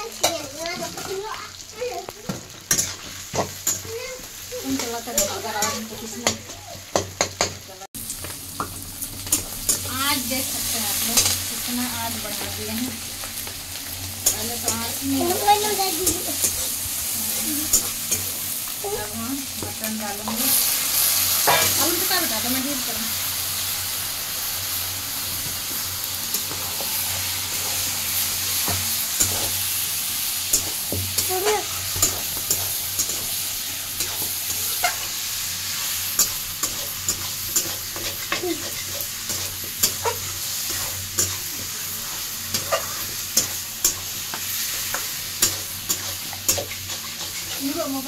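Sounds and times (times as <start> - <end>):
meat sizzling in a pan: 0.0 - 48.0
metal spatula scraping a pan: 2.6 - 3.9, 19.8 - 22.5, 34.0 - 48.0.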